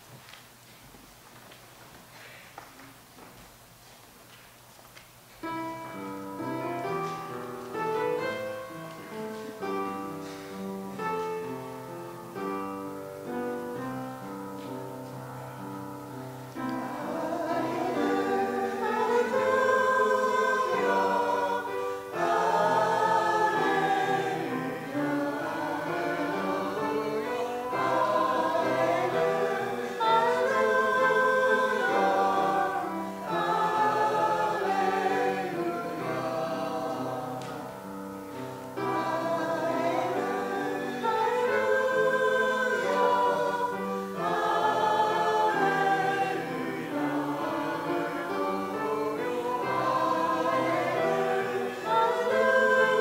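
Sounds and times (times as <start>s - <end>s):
instrumental hymn introduction: 4.6s - 53.0s
group of voices singing a hymn: 5.5s - 53.0s.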